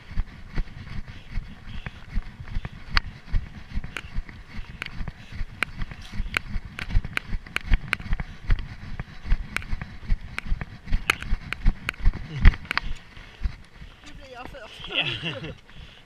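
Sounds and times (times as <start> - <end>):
running footsteps on grass: 0.0 - 15.9
sharp clicks and knocks: 3.9 - 14.3.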